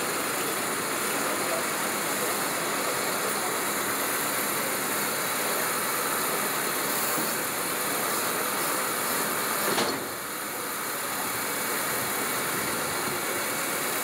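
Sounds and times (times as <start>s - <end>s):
truck engine running: 0.0s - 14.0s
clunk: 9.6s - 10.2s.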